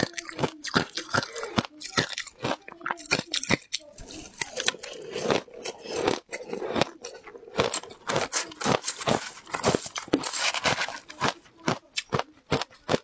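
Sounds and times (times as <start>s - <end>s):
ice crunching while chewing: 0.0s - 13.0s
metal spoon scooping ice: 4.0s - 11.4s.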